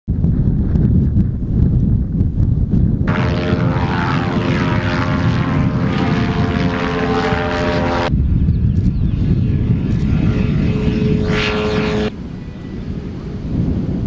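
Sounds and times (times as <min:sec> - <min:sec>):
wind rumbling on microphone: 0:00.1 - 0:14.0
small airplane engine drone: 0:03.1 - 0:14.0.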